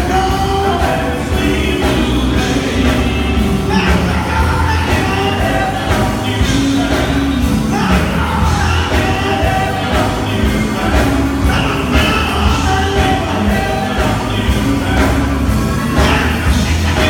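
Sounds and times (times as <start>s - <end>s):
gospel band playing: 0.0s - 17.0s
man singing: 0.0s - 17.0s.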